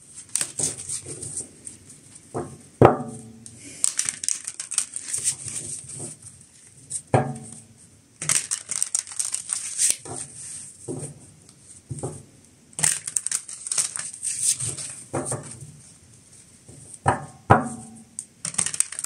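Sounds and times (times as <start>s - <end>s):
cards being shuffled: 0.2s - 1.8s, 3.8s - 7.0s, 8.2s - 10.6s, 12.8s - 15.6s, 18.5s - 19.0s.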